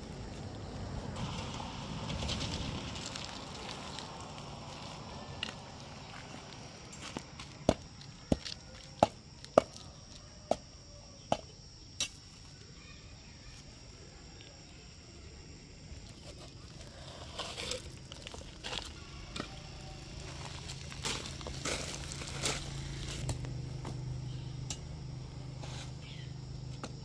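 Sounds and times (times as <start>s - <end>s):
hand tool chopping gravelly ground: 7.0s - 9.9s, 16.2s - 24.0s, 26.7s - 27.0s.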